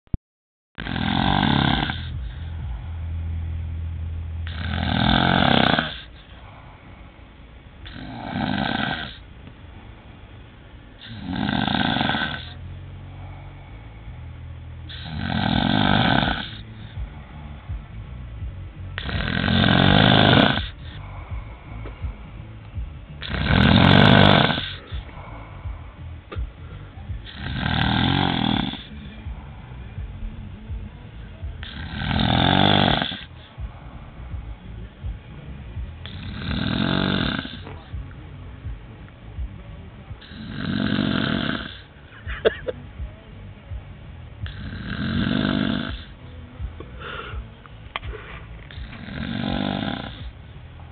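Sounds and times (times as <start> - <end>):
man snoring loudly: 0.8 - 2.8, 4.4 - 6.2, 7.8 - 9.2, 11.0 - 12.6, 14.9 - 17.5, 19.0 - 21.8, 23.1 - 26.1, 27.1 - 29.6, 31.6 - 33.7, 36.0 - 38.0, 40.2 - 41.9, 44.4 - 46.2, 48.7 - 50.4.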